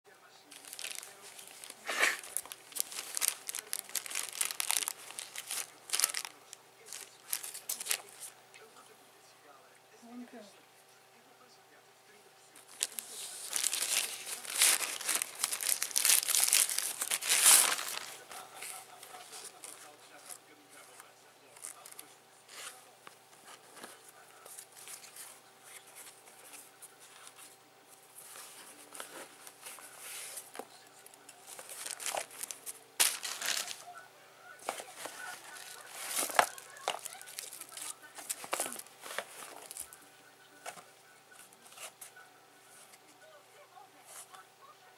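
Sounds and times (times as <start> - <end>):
plastic bag crinkling and tearing: 0.5 - 8.3, 12.6 - 20.4, 30.5 - 33.9, 34.6 - 40.0
cardboard and paper rustling: 0.5 - 8.4, 12.5 - 34.0, 34.6 - 40.0, 40.6 - 43.2.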